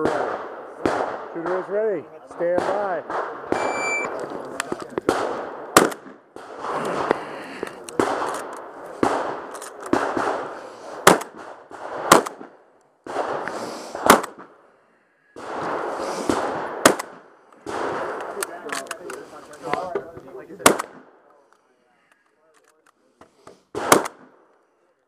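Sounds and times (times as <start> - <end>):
shotgun firing single shots: 0.0 - 7.2, 7.8 - 14.6, 15.4 - 18.8, 20.6 - 21.1, 23.7 - 24.5
shot timer beep: 3.6 - 4.1.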